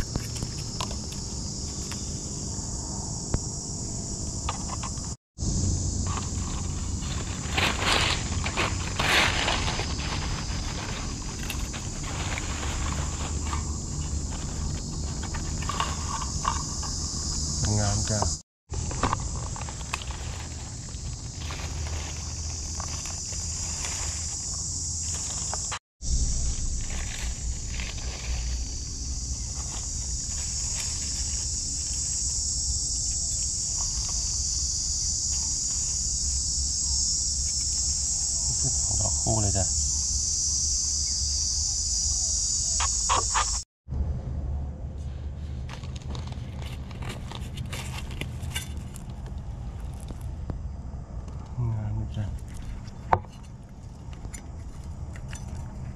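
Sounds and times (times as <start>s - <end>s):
high-pitched insect drone: 0.0s - 43.6s
dry leaves rustling: 5.4s - 41.4s, 45.3s - 50.3s.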